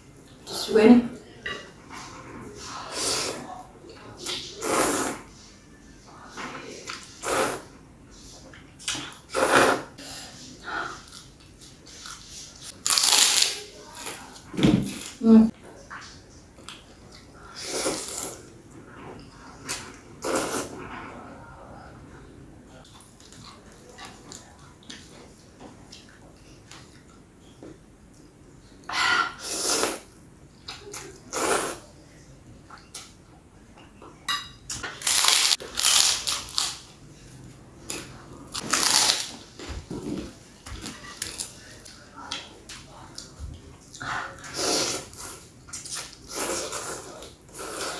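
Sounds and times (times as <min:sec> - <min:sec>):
person slurping noodles: 0:04.6 - 0:05.2, 0:09.3 - 0:10.0, 0:20.2 - 0:20.8, 0:29.4 - 0:30.1, 0:46.3 - 0:47.9
cracker crunching: 0:35.0 - 0:36.9.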